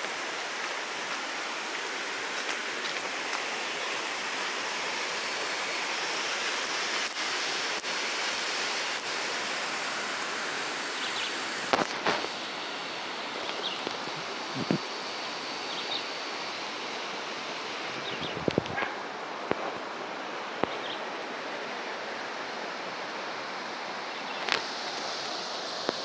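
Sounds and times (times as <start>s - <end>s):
stream water running over rocks: 0.0s - 26.0s.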